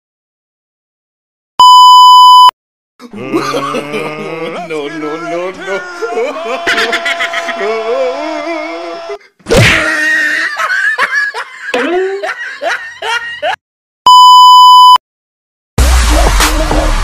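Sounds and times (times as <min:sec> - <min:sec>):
high test-tone beep: 0:01.6 - 0:02.5, 0:14.1 - 0:15.0.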